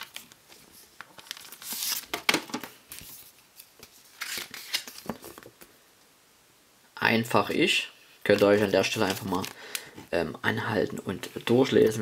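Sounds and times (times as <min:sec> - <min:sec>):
paper and plastic rustling: 0:00.0 - 0:05.6, 0:08.2 - 0:09.6.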